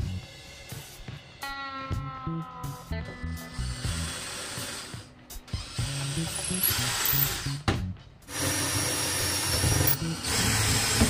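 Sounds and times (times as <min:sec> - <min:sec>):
cordless drill drilling into wood: 0:03.7 - 0:07.6, 0:08.3 - 0:11.0.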